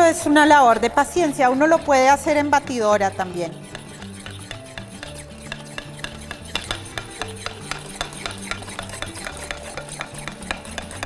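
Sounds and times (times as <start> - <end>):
utensil clicking against bowl: 3.2 - 11.0.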